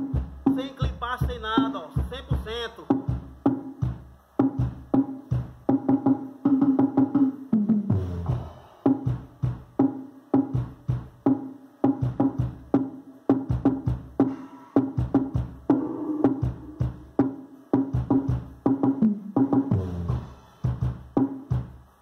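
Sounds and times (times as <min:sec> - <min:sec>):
electronic dance music: 0:00.0 - 0:03.4, 0:13.6 - 0:18.2.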